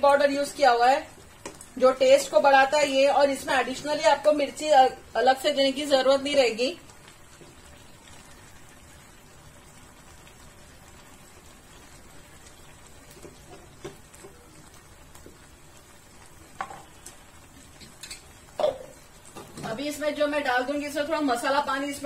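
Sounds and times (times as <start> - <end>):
curry sizzling in a pan: 0.0 - 22.0.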